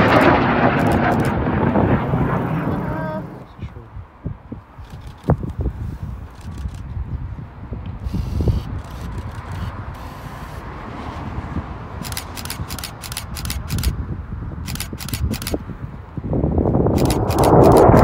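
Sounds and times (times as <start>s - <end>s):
distant jet rumble: 0.0s - 18.0s
wind buffeting microphone: 0.0s - 18.0s
rapid ticks: 12.0s - 13.9s, 14.7s - 15.6s, 16.9s - 18.0s.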